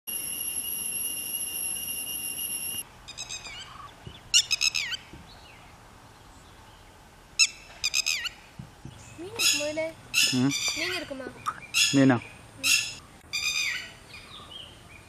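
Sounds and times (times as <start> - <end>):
steady high-pitched tone: 0.1 - 3.4
lapwing calls: 1.5 - 5.1, 7.4 - 8.4, 9.1 - 14.6.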